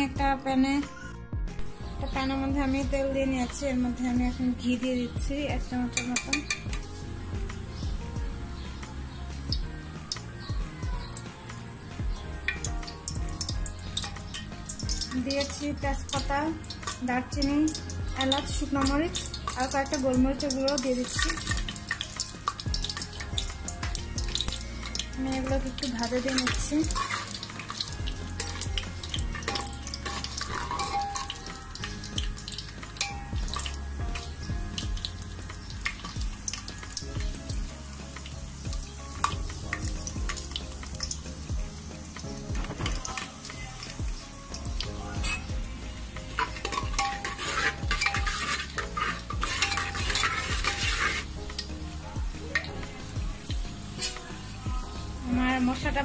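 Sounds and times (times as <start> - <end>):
spices crackling: 1.6 - 56.0
spices sizzling in hot oil: 1.6 - 56.0
spoon scraping metal pan: 5.9 - 6.8, 24.8 - 33.7, 46.3 - 51.6.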